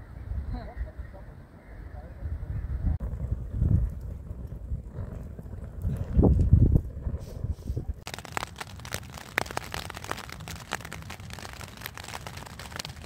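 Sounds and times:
raindrops pattering on tent fabric: 8.0 - 13.0.

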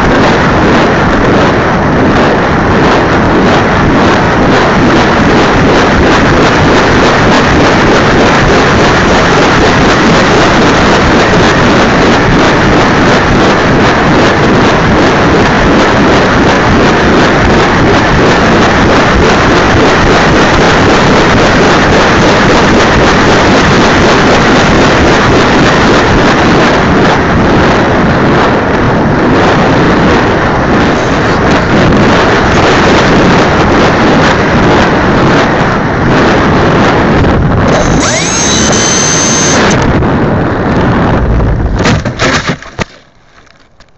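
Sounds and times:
wind on microphone: 0.0 - 43.9
model plane engine and propeller: 29.9 - 40.0
high whine: 37.4 - 42.1.

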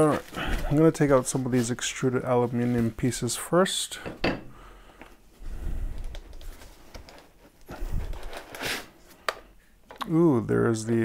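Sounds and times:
packing foam and cardboard rustling: 0.0 - 3.5, 6.2 - 9.0.

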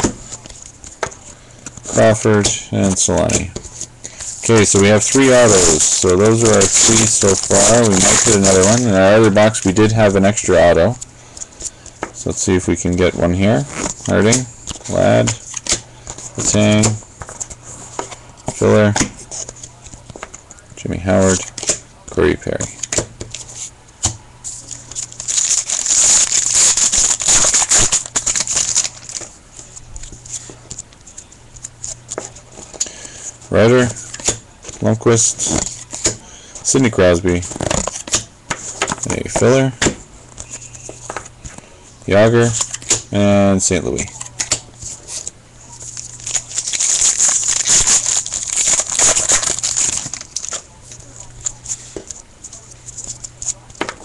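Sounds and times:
cards rustling and clicking: 0.0 - 20.5, 21.1 - 41.7, 42.4 - 43.1, 43.8 - 54.0
card pack wrapper tearing and crinkling: 4.5 - 10.0, 24.6 - 29.3, 45.8 - 51.6.

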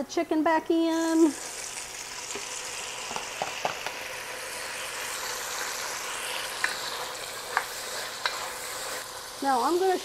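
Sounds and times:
chicken sizzling in oil: 0.8 - 10.0
wooden spoon stirring: 6.6 - 9.0.

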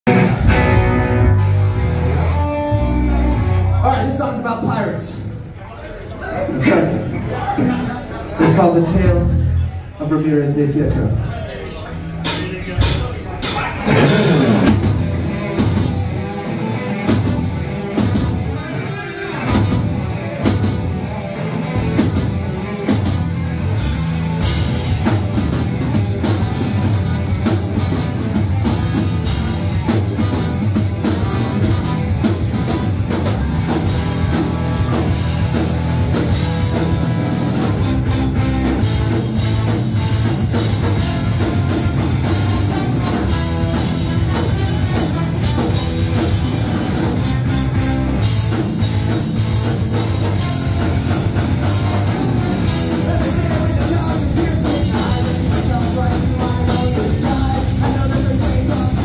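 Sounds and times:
rock band playing live: 0.0 - 59.0.

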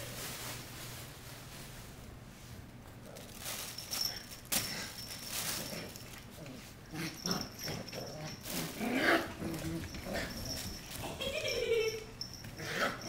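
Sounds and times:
puppies scuffling on wooden floor: 3.1 - 13.0.

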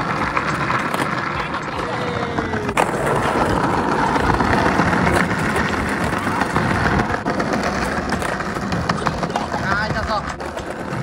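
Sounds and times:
skateboard clacks: 0.0 - 11.0
skateboard wheels rumbling on paving: 0.0 - 11.0.

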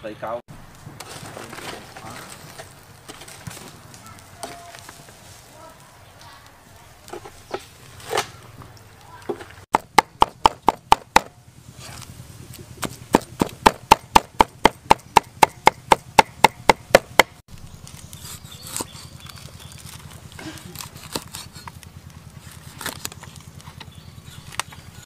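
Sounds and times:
cleaver chopping on wooden block: 9.7 - 11.3, 12.8 - 17.4.

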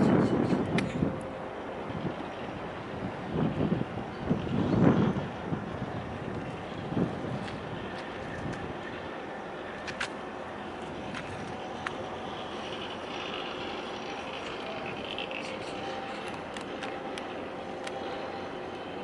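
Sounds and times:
outdoor background rush: 0.0 - 19.0.

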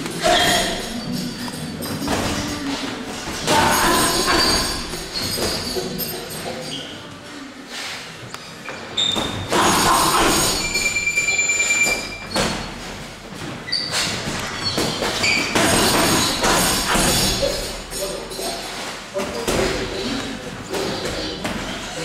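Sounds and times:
short squeaks: 3.2 - 7.0, 8.4 - 12.8, 13.6 - 18.8.

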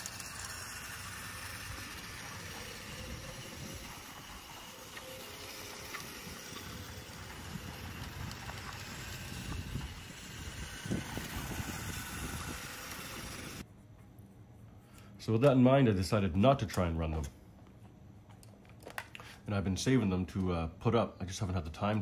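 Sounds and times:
outdoor hiss: 0.0 - 13.6
small electric toy motor running: 0.0 - 13.6.

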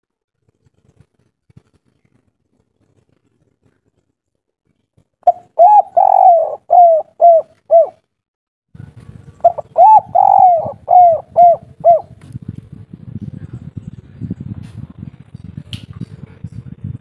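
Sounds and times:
dove cooing: 5.3 - 8.0, 9.4 - 12.2.

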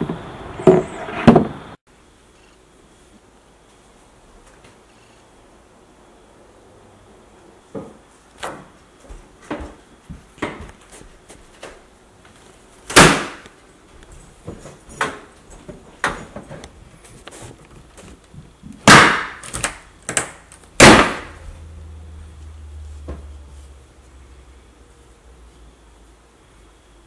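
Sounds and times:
low steady hum: 19.8 - 27.0.

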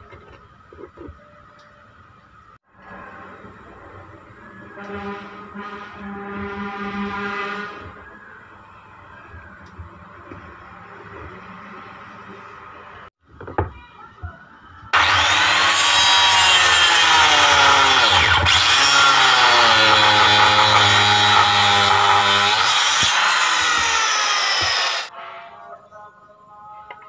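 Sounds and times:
angle grinder cutting wood: 15.0 - 25.1.

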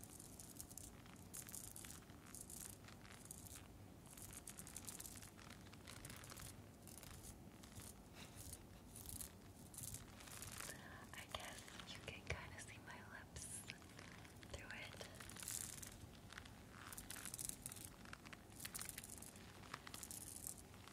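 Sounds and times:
scratching and rubbing on face mask: 0.0 - 20.9.

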